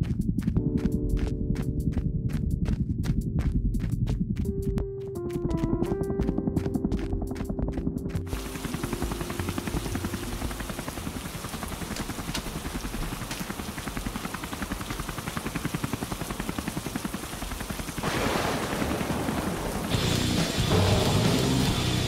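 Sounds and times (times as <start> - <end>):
helicopter rotor chopping: 5.5 - 22.0.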